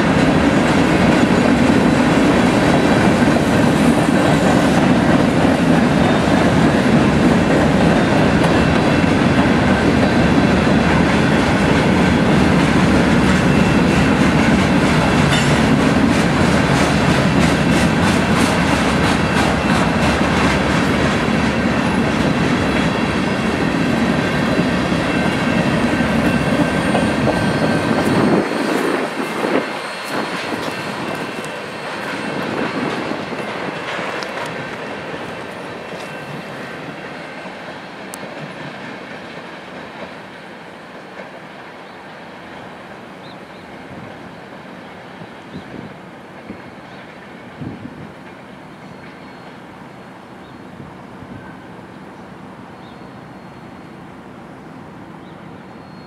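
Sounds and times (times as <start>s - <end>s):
clickety-clack over rail joints: 0.0s - 42.8s, 45.5s - 49.6s
train wheels rumbling on rail: 0.0s - 56.0s
faint high wheel squeal: 24.7s - 33.3s, 48.8s - 49.8s, 52.7s - 54.0s, 55.2s - 56.0s.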